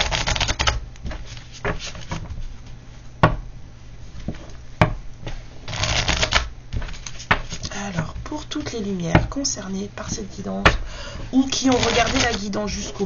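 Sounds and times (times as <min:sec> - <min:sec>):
cards riffling: 0:00.0 - 0:02.2, 0:05.7 - 0:07.7, 0:11.5 - 0:12.5
cards tapping: 0:05.7 - 0:09.3.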